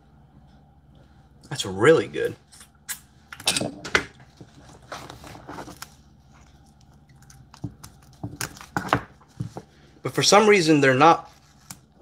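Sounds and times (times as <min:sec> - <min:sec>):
crab shell cracking: 0:06.7 - 0:09.1.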